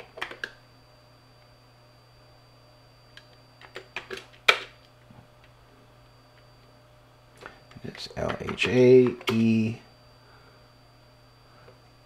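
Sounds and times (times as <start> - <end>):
faint high whine: 0.0 - 12.0
steady low hum: 0.0 - 12.0
computer keyboard keystrokes: 8.2 - 9.5.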